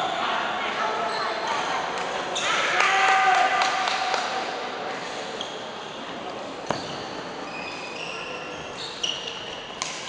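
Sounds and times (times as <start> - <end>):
shoes squeaking on court: 5.4 - 6.1, 6.7 - 10.0.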